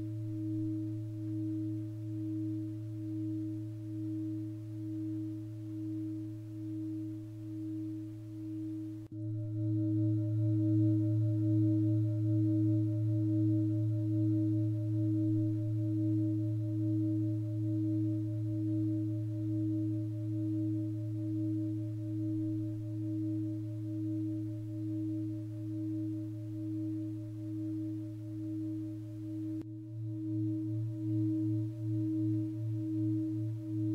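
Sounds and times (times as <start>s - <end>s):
singing bowl humming: 0.0s - 33.9s.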